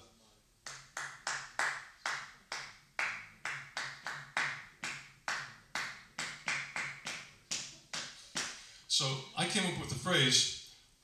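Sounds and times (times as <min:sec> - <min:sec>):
man clapping hands: 0:00.6 - 0:08.6.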